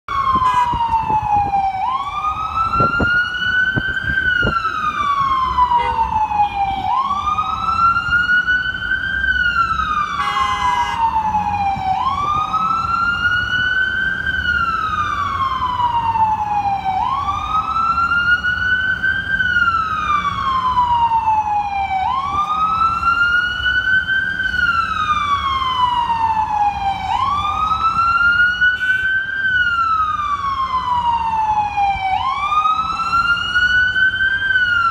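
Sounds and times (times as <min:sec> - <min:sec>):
ambulance siren wailing: 0:00.0 - 0:34.9
traffic rumble: 0:00.1 - 0:34.9.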